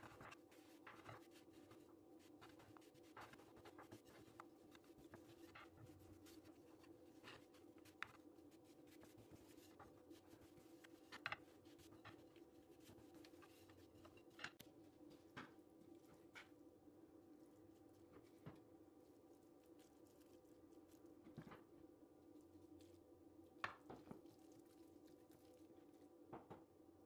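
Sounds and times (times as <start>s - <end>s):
rolling pin rolling dough: 0.0s - 16.6s
faint hum: 0.0s - 27.0s.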